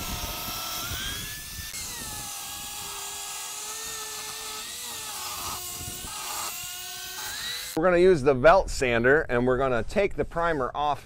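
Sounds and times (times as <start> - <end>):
table saw motor whine: 0.0 - 7.8.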